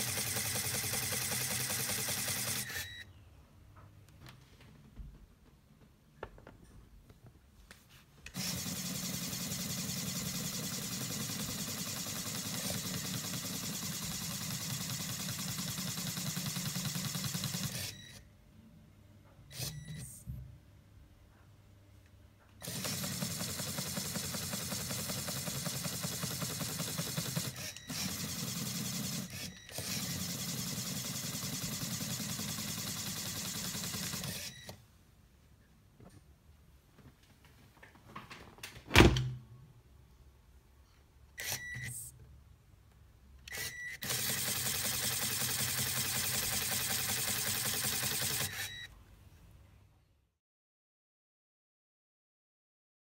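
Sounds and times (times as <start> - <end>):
small motor pump chattering: 0.0 - 2.9, 8.4 - 17.9, 22.6 - 34.5, 43.5 - 48.8.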